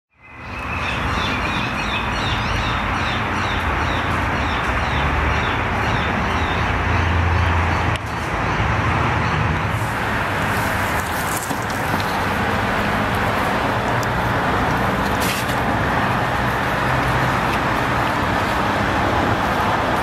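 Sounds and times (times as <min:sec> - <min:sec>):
birds chirping: 0:00.1 - 0:08.6
distant traffic hum: 0:00.2 - 0:20.0.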